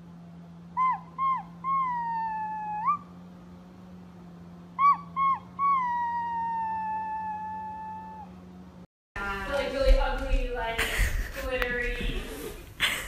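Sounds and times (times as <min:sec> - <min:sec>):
low hum: 0:00.0 - 0:13.0
puppy yipping and howling: 0:00.8 - 0:03.2, 0:04.7 - 0:08.4.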